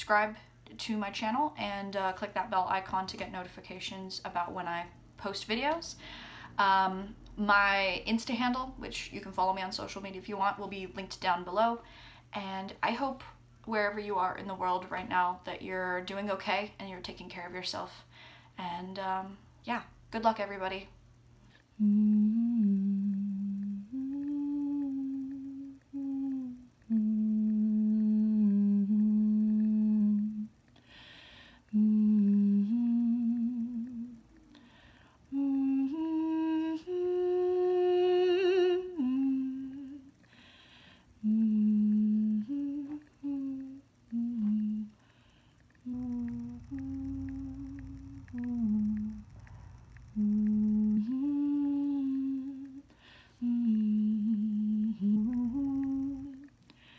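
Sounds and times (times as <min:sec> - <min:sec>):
woman humming a slow tune: 0:21.6 - 0:30.8, 0:31.6 - 0:40.3, 0:41.2 - 0:45.0, 0:45.6 - 0:56.9.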